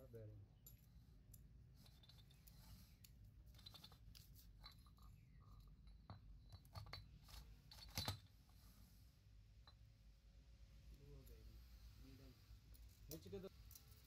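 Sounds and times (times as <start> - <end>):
metal parts clicking and scraping: 0.7 - 8.3.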